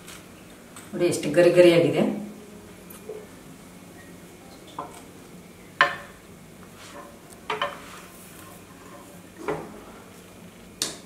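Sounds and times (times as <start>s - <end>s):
spatula and plate clinking on griddle: 6.9s - 7.9s.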